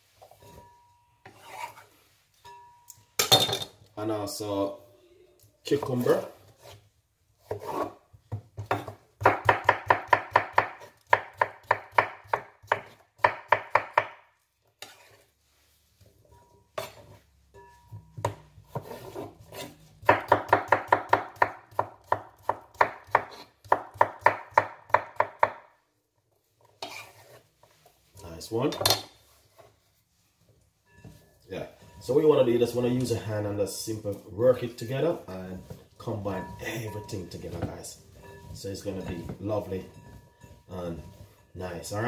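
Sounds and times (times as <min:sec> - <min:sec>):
knife chopping on wooden board: 0:07.5 - 0:14.2, 0:18.2 - 0:25.6.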